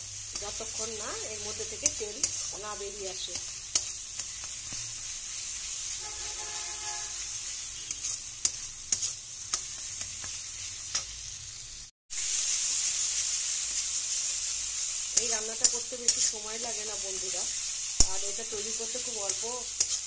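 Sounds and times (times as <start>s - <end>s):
paste sizzling in oil: 0.0s - 20.0s
spatula scraping and tapping pan: 7.8s - 11.2s, 19.2s - 20.0s.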